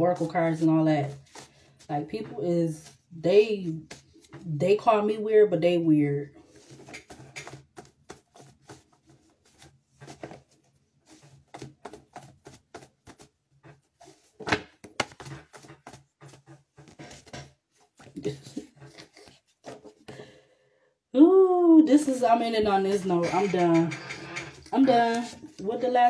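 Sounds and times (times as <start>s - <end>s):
cards being shuffled: 0.2s - 4.5s, 6.5s - 20.1s, 24.1s - 25.8s.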